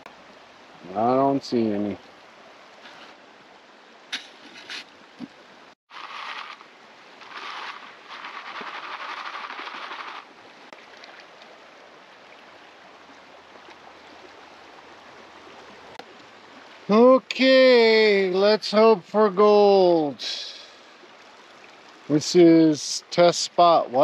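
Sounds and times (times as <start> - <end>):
creek flowing: 0.0 - 24.0
gravel and water sloshing in pan: 5.9 - 11.7.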